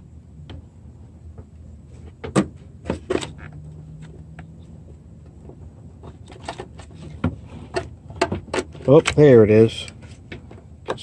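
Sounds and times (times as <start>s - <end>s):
low steady hum: 0.0s - 11.0s
wiring harness clicks and scrapes: 6.0s - 11.0s.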